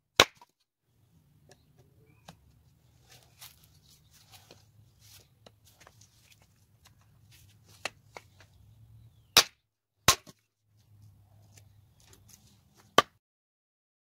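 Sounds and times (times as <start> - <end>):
hatchet chopping wood: 0.2 - 0.5, 9.4 - 10.4.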